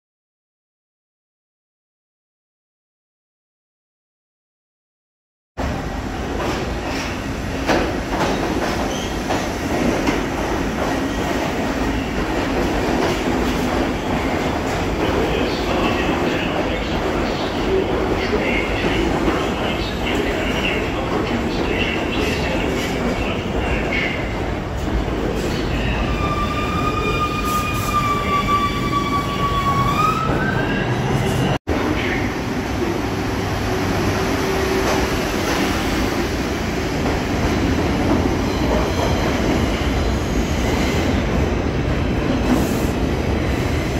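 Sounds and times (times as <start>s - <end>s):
subway train rumbling: 5.6s - 43.9s
high brake squeal: 26.1s - 30.8s.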